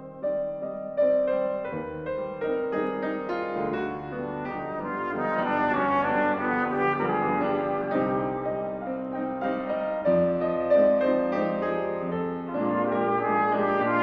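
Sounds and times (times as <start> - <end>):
piano accompaniment: 0.0 - 14.0
cornet playing sustained notes: 4.4 - 9.3, 12.5 - 14.0.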